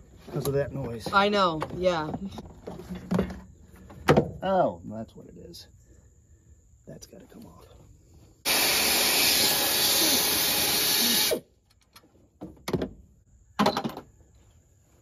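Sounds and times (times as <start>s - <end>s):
pneumatic air ratchet running: 8.4s - 11.5s.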